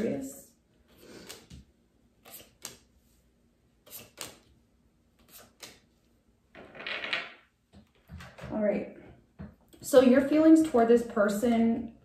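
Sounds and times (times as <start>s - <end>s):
cards clicking on wooden table: 1.2s - 2.9s, 3.8s - 4.5s, 5.2s - 5.9s.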